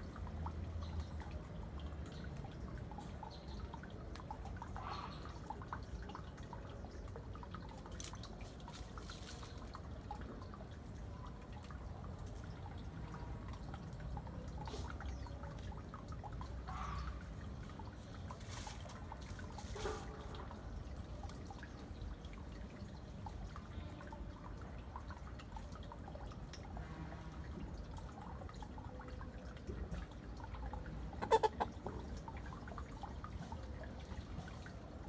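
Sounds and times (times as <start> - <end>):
chicken scratching through leaves: 18.4 - 20.1.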